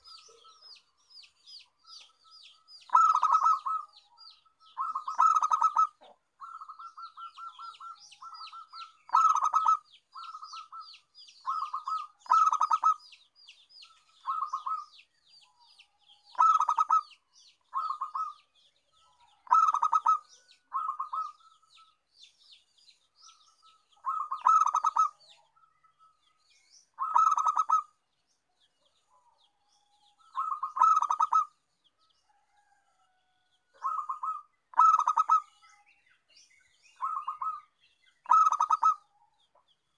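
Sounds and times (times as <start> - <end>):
dove cooing: 2.9 - 4.0, 4.7 - 13.0, 14.2 - 14.9, 16.3 - 17.1, 17.7 - 18.4, 19.2 - 21.9, 24.0 - 25.5, 27.0 - 27.9, 30.2 - 31.6, 33.8 - 35.7, 37.0 - 39.1.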